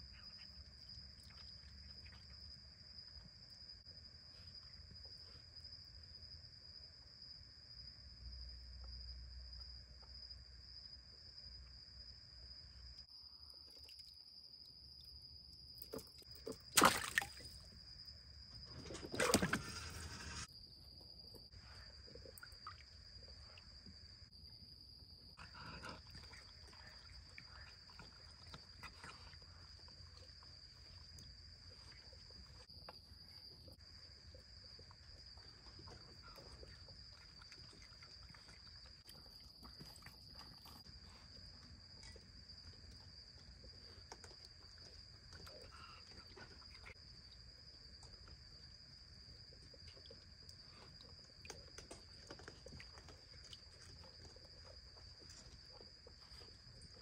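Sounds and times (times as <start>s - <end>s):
high insect trill: 0.0s - 57.0s
animal splashing in water: 16.4s - 17.6s, 18.9s - 20.5s
rustles and drips: 25.4s - 48.6s, 49.2s - 57.0s.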